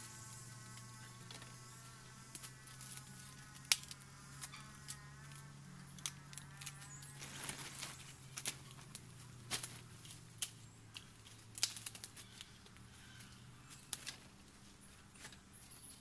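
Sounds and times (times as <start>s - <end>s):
steady buzzing drone: 0.0s - 16.0s
dry sticks snapping: 2.3s - 14.6s.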